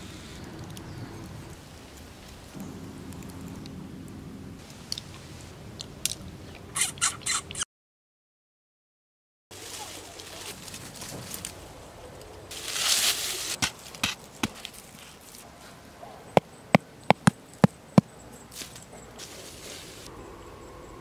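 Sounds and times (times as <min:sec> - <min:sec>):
rustling: 0:12.5 - 0:15.8.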